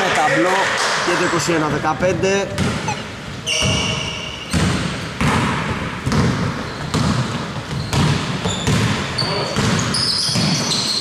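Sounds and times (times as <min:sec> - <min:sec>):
basketball dribbling: 0:02.5 - 0:03.9, 0:04.5 - 0:10.9
short high squeak: 0:02.8 - 0:04.3.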